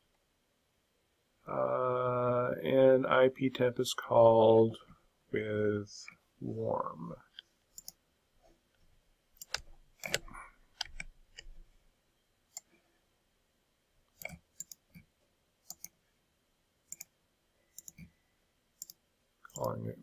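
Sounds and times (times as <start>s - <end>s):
computer mouse buttons clicking: 7.8s - 8.0s, 9.4s - 11.5s, 14.2s - 16.0s, 17.8s - 18.1s, 18.8s - 19.8s.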